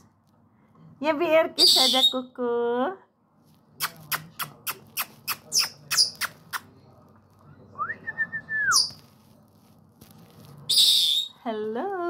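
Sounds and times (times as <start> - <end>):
parrot high squeak: 1.6 - 2.2, 10.7 - 11.4
parrot whistle: 1.6 - 2.2, 10.7 - 11.4.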